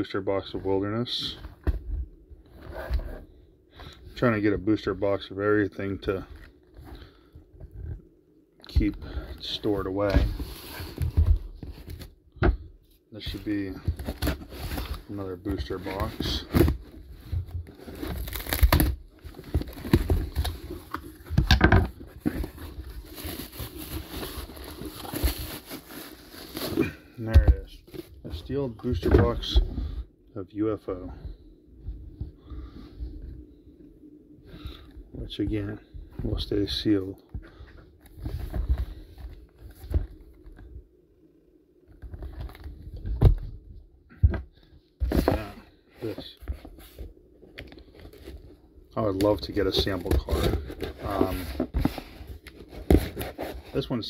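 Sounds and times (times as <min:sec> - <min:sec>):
packaging crinkling and rustling: 0:13.2 - 0:29.5, 0:45.1 - 0:54.0
packaging scraping and tearing: 0:17.7 - 0:21.2, 0:22.2 - 0:26.9.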